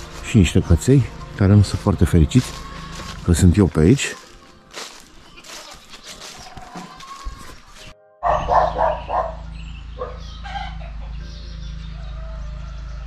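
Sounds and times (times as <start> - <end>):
quiet footsteps: 0.0 - 8.7
dogs barking: 8.2 - 11.1.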